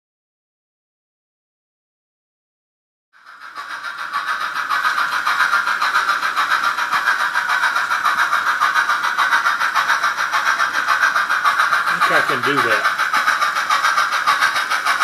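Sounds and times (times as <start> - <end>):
model steam locomotive running: 3.2 - 15.0.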